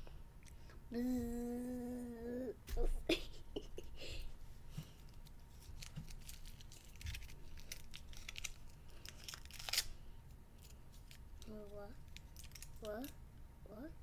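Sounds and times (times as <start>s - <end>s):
foil wrapper crinkling and tearing: 5.1s - 10.0s, 10.6s - 13.1s.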